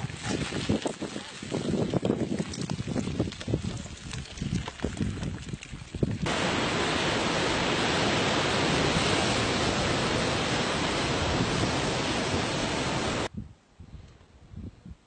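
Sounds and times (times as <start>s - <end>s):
surf roaring: 6.3s - 13.3s.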